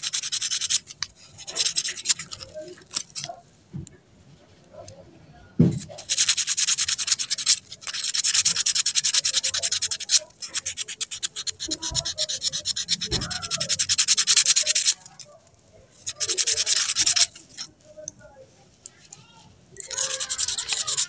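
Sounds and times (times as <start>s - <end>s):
sandpaper scratching metal: 0.0s - 3.4s, 5.7s - 15.3s, 15.9s - 17.7s, 19.8s - 21.0s.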